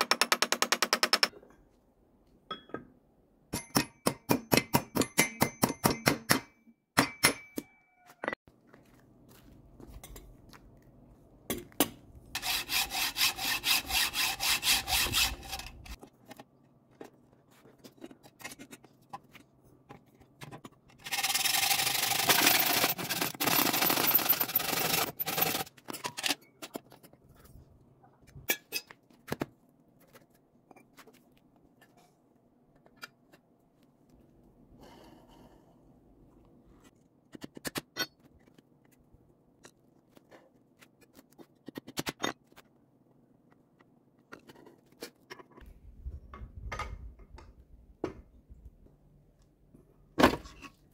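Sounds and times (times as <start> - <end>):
hacksaw cutting metal tube: 12.4 - 16.0
clinks and knocks of parts: 20.4 - 27.2.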